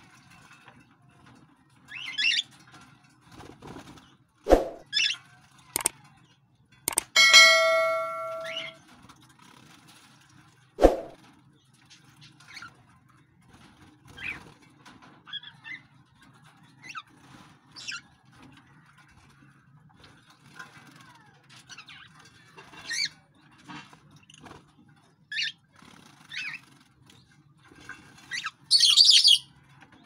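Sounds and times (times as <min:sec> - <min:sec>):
metallic clang: 0:06.9 - 0:08.8
sharp clicks and knocks: 0:06.9 - 0:08.8
small birds chirping: 0:28.2 - 0:30.0.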